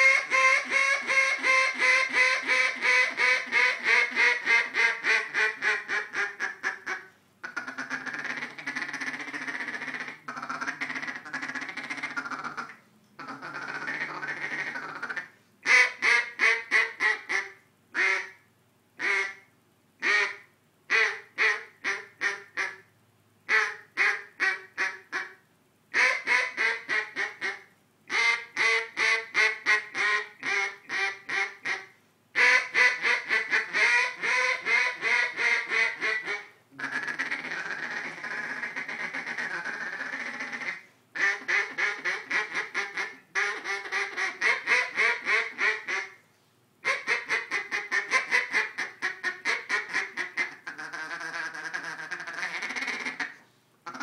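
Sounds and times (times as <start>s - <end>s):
duck call quacks: 0.0s - 22.9s, 23.5s - 46.2s, 46.8s - 54.0s.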